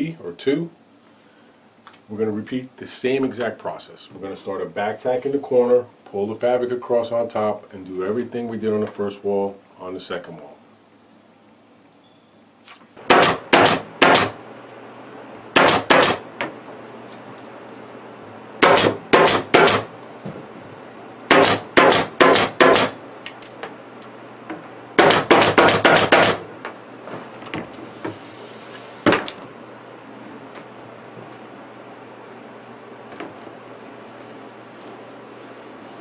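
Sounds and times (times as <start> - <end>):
pneumatic staple gun firing: 13.1 - 14.4, 15.6 - 16.2, 18.6 - 19.9, 21.3 - 23.0, 25.0 - 26.4.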